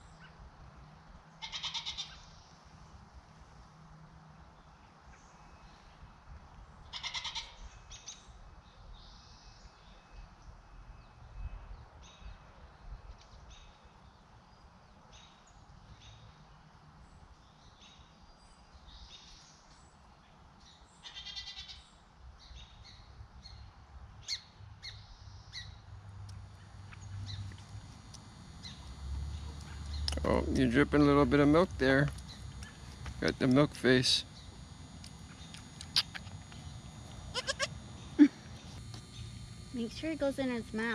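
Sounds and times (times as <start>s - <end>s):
goat kids bleating: 1.4s - 2.2s, 6.9s - 7.6s, 34.0s - 38.5s
faint chirps and clicks: 24.3s - 39.9s.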